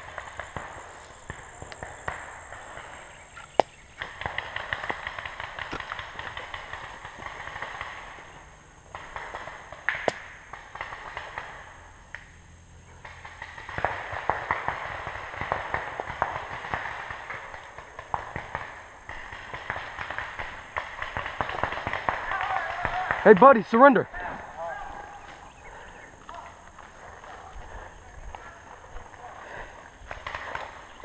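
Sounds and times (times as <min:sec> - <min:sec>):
footsteps crunching through undergrowth: 0:00.0 - 0:08.0, 0:24.2 - 0:31.0.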